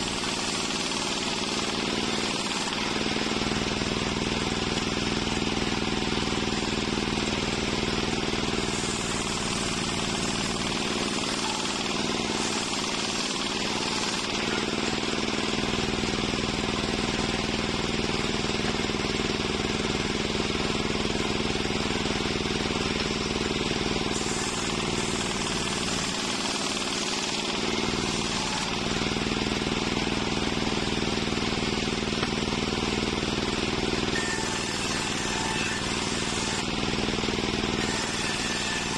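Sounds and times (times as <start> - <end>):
circular saw cutting wood: 0.0 - 38.9.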